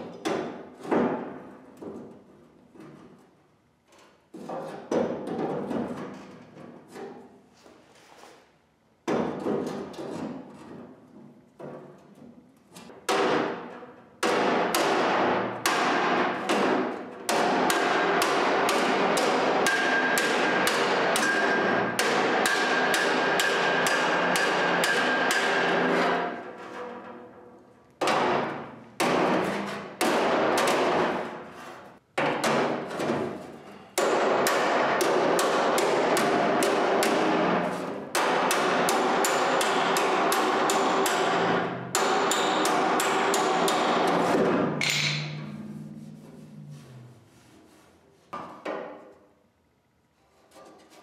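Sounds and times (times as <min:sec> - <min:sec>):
hammer striking metal panel: 0:13.0 - 0:26.3, 0:28.0 - 0:31.4, 0:34.0 - 0:45.6.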